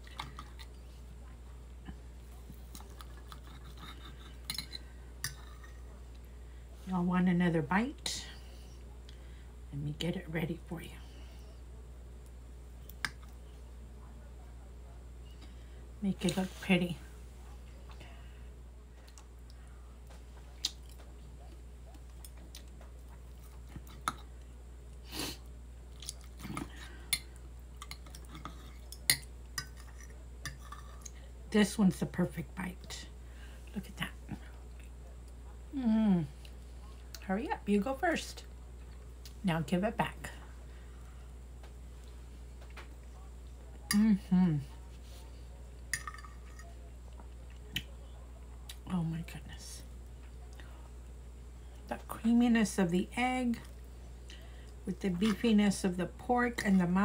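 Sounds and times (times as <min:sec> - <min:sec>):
steady low hum: 0:00.0 - 0:57.0
chewing food: 0:01.9 - 0:04.5, 0:25.9 - 0:31.2
faint chewing: 0:01.9 - 0:06.3, 0:18.9 - 0:31.3.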